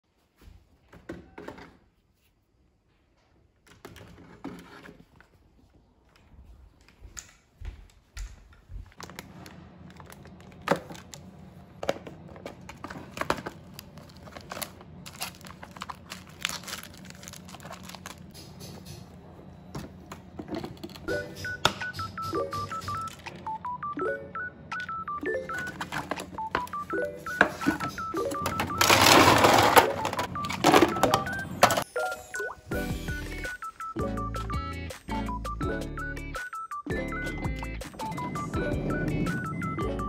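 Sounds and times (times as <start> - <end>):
plastic packets crinkling: 12.1 - 18.4.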